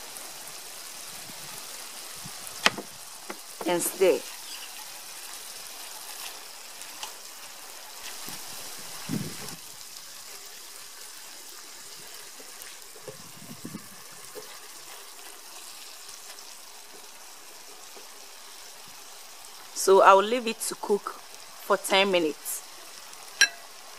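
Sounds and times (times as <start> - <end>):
stew sizzling in a frying pan: 0.0 - 23.9
spatula stirring: 14.1 - 18.1.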